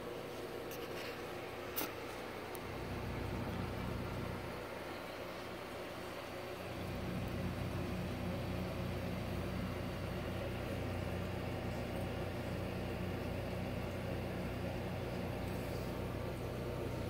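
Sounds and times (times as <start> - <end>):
aquarium pump humming: 0.0 - 17.0.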